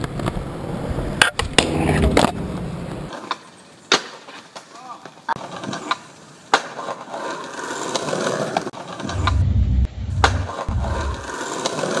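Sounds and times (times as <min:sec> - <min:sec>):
skateboard wheels rolling on stone: 0:00.0 - 0:09.3, 0:10.2 - 0:12.0
skateboard clacks: 0:03.0 - 0:09.1.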